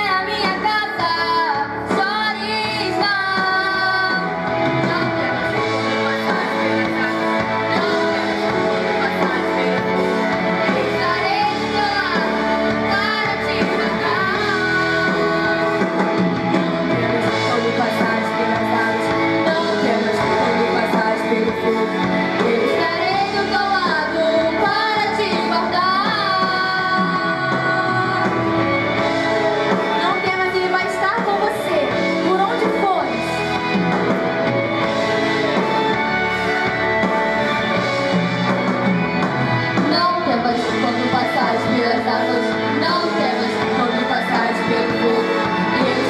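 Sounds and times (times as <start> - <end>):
women singing gospel song: 0.0 - 28.7, 39.9 - 46.0
instrumental accompaniment: 0.0 - 46.0.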